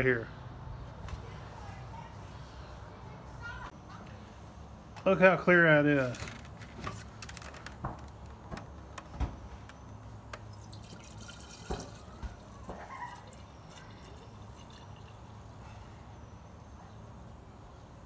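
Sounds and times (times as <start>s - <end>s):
liquid trickling into a jar: 10.4s - 15.5s.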